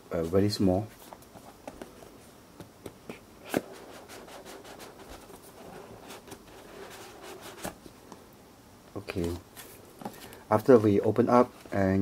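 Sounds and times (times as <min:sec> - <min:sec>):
cardboard box rustling: 0:03.4 - 0:07.9.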